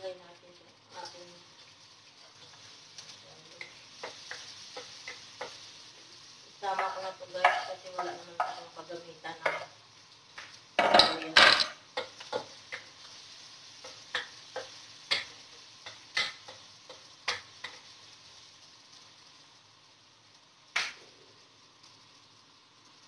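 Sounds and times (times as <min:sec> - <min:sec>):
faint sizzling food: 0:00.0 - 0:23.0
spatula knocking metal wok: 0:03.6 - 0:05.6, 0:06.6 - 0:08.8, 0:09.4 - 0:09.7, 0:10.8 - 0:12.9, 0:13.8 - 0:17.9.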